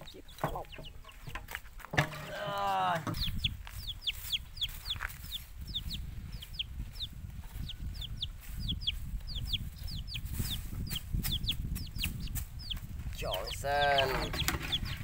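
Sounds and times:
chicks peeping: 0:00.0 - 0:15.0.

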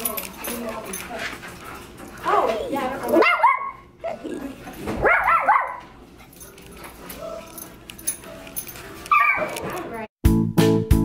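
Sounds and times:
puppy yipping: 0:08.2 - 0:09.6.

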